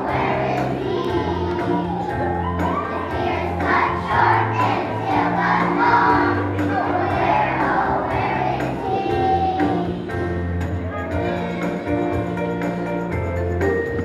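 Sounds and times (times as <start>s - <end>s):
children singing in unison: 0.0s - 10.3s
instrumental accompaniment with bass: 0.0s - 14.0s.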